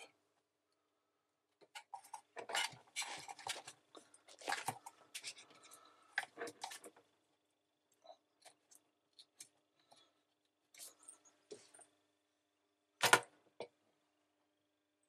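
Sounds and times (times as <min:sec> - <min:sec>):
scraping and rubbing: 0:01.8 - 0:07.0.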